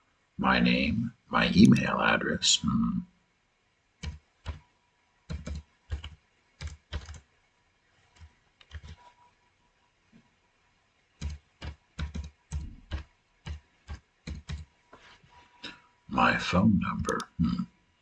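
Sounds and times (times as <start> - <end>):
typing on computer keyboard: 4.0 - 4.6, 5.3 - 7.3, 8.1 - 9.0, 11.2 - 14.7.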